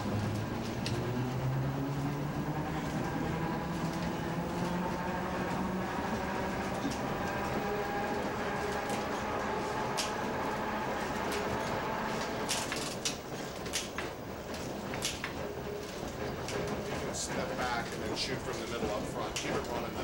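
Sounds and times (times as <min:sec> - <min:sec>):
low hum rising in pitch: 0:00.0 - 0:12.5
streetcar motor and wheel rumble: 0:00.0 - 0:20.0.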